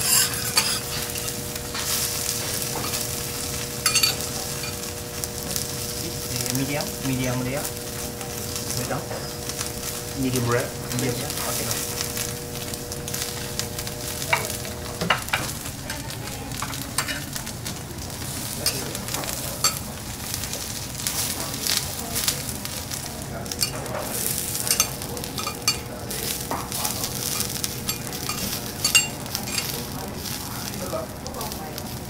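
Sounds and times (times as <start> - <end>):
metal spatulas scraping: 0.0 - 1.4, 3.8 - 4.8, 15.9 - 17.3, 18.6 - 19.8, 23.6 - 25.9, 27.0 - 29.9
food sizzling on griddle: 0.0 - 32.0.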